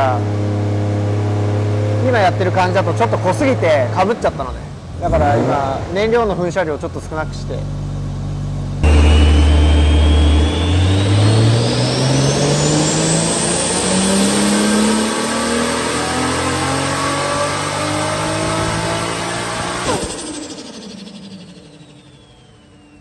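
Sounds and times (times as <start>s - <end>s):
engine revving under load: 0.0s - 6.4s, 8.8s - 23.0s
high turbo whine: 8.3s - 23.0s.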